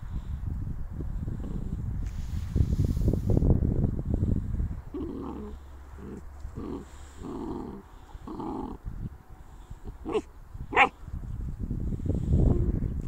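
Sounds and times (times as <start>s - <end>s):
puppies growling: 4.9s - 8.8s, 9.9s - 10.9s.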